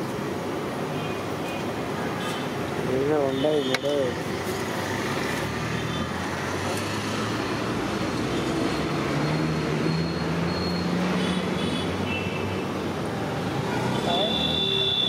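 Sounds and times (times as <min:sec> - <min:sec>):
street traffic: 0:00.0 - 0:15.0.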